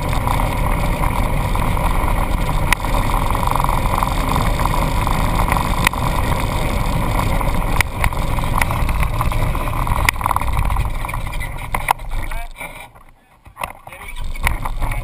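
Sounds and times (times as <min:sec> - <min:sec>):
vehicle engine running: 0:00.0 - 0:15.0
wind and road noise: 0:00.0 - 0:15.0.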